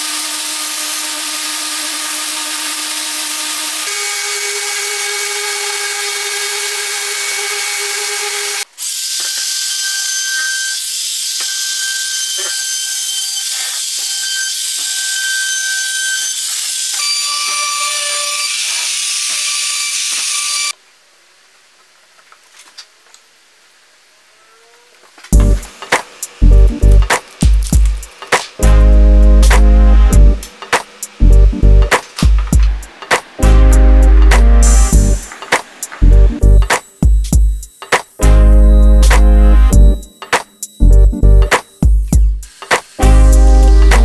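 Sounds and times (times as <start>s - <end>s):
power tool whining: 0.0s - 20.8s.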